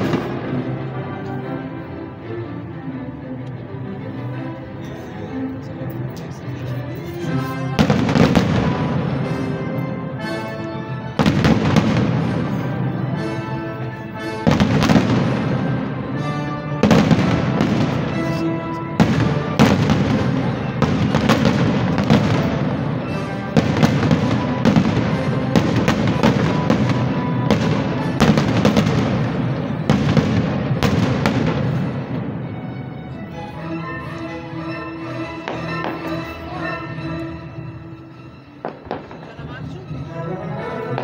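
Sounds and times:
fireworks crackle: 0.0 - 0.6, 16.8 - 32.3
fireworks bursting with bangs: 0.0 - 0.7, 7.8 - 9.6, 11.1 - 13.0, 14.4 - 16.2, 16.8 - 32.5, 38.6 - 39.3
music playing: 0.0 - 41.0.

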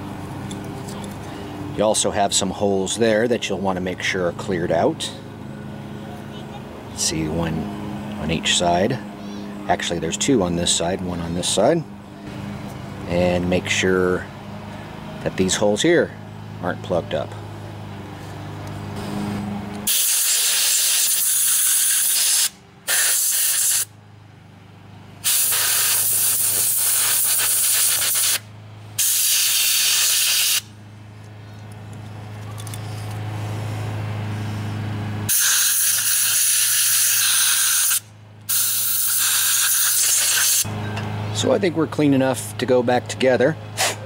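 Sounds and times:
compressed air blasts: 18.9 - 23.9, 25.2 - 30.7, 32.8 - 40.7, 43.8 - 44.0.

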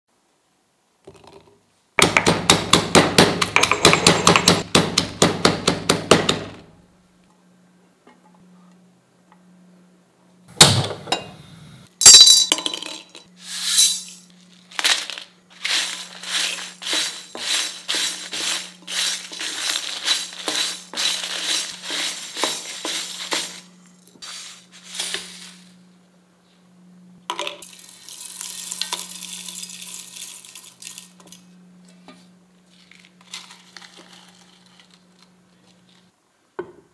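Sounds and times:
pounding in a stone mortar: 2.0 - 6.5
seeds rattling into steel jar: 12.0 - 25.8, 27.6 - 31.5, 32.7 - 36.1.

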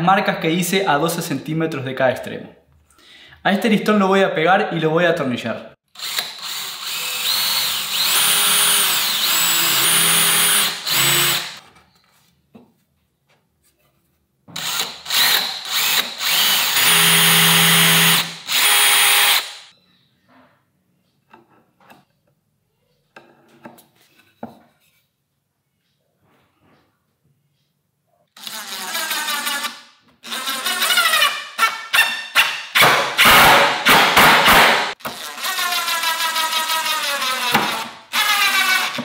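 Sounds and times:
cordless drill boring into wood: 5.9 - 11.6, 14.6 - 19.7, 33.2 - 39.0.

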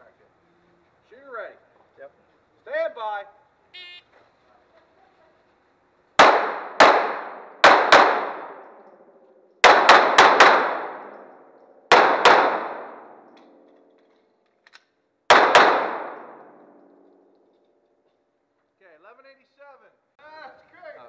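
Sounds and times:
pistol shots echoing indoors: 6.2 - 13.7, 15.3 - 17.5.

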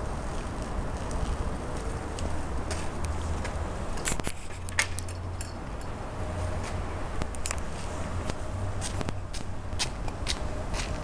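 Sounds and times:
footsteps: 0.3 - 4.7.

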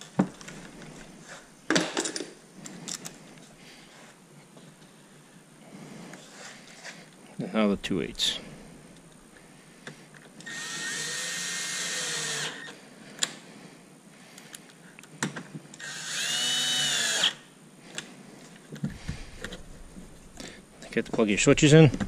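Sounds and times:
cordless drill driving bolts: 10.4 - 12.8, 15.8 - 17.4.

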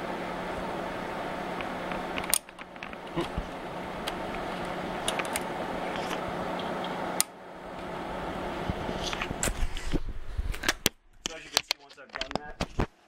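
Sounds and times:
cooling fan whirring: 0.0 - 12.9
low electrical hum: 0.0 - 13.0
small clicks and handling knocks: 10.6 - 12.9.

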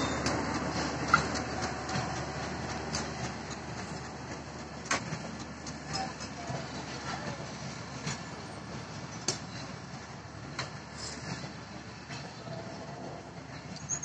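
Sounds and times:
train coaches rumbling: 0.0 - 14.0.

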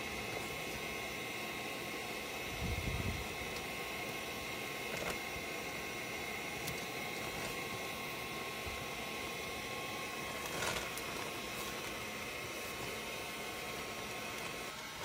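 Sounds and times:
fan whirring: 0.0 - 15.0
handling rustle: 10.3 - 13.0.

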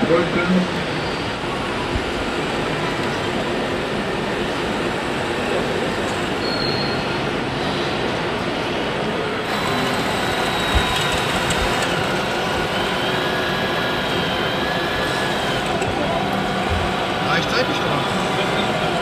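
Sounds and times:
mechanical running noise: 9.4 - 19.0.

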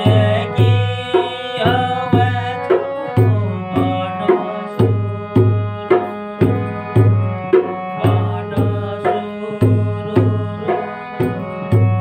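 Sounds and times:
hand drum beat: 0.0 - 12.0
harmonium chords: 0.0 - 12.0.

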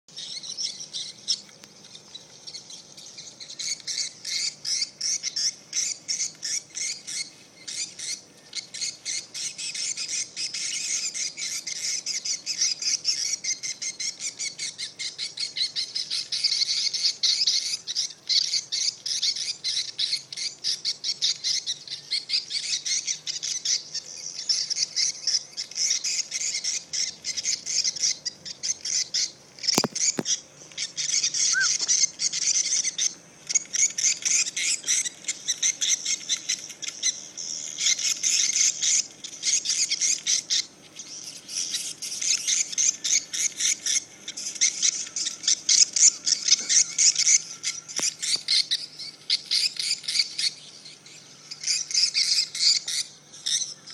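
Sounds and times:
sharp click: 29.7 - 30.3
swiftlets chirping: 31.5 - 31.9.

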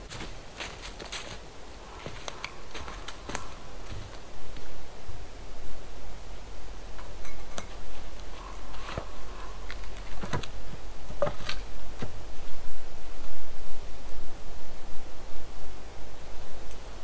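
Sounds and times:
steady background hiss: 0.0 - 17.0
twigs clicking and knocking: 0.1 - 4.7, 7.0 - 10.6.

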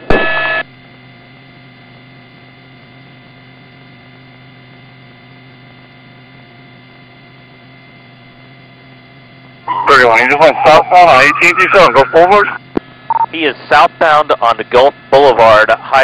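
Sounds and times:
radio transmission: 0.0 - 0.6, 9.7 - 14.4
electrical hum with hiss: 0.0 - 16.0.

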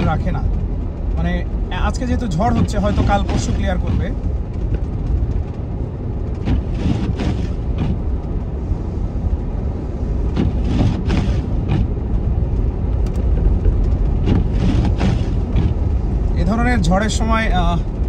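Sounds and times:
car cabin rumble: 0.0 - 18.0
windshield wiper sweeps: 2.2 - 16.4.

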